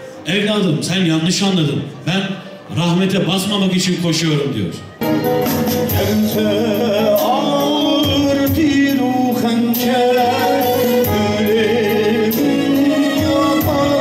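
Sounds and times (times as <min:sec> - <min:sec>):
electronic keyboard: 0:04.8 - 0:14.0
man singing through microphone: 0:05.8 - 0:14.0.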